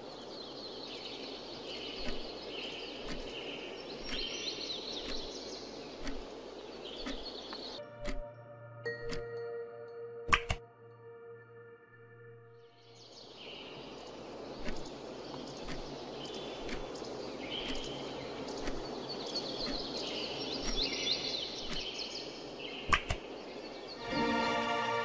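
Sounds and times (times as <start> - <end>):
timer ticking: 8.0 - 8.3, 17.6 - 17.9.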